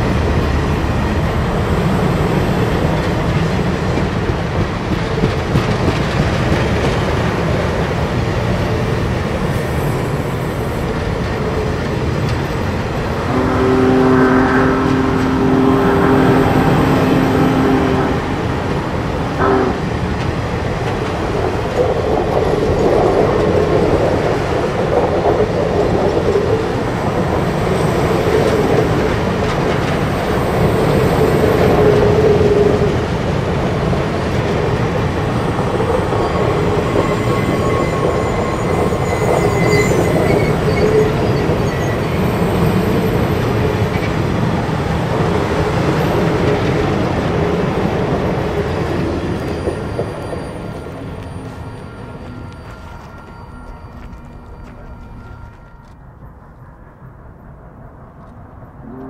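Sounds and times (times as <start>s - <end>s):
steel train wheels on rails: 0.0s - 56.8s
wheel squeals: 35.2s - 44.2s, 48.7s - 56.0s.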